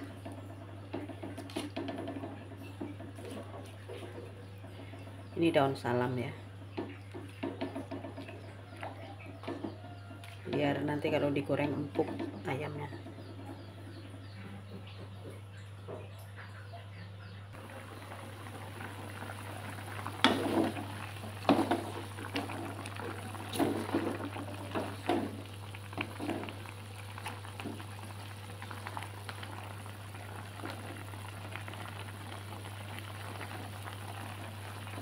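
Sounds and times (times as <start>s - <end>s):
broth bubbling in pot: 0.0s - 15.2s, 17.6s - 35.0s
knocks and clatters: 0.1s - 5.1s, 6.7s - 9.8s.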